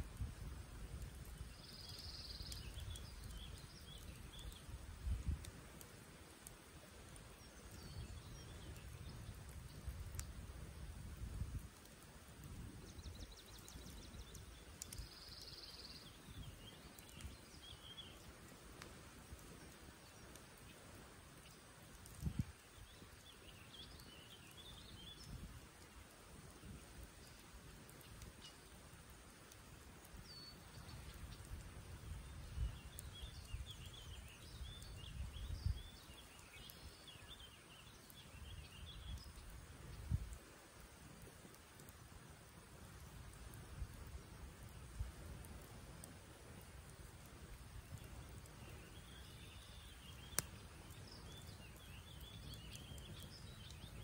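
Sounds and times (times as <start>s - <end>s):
campfire popping: 0.0s - 54.0s
small birds chirping: 0.1s - 54.0s
songbird trilling and chirping: 48.6s - 54.0s.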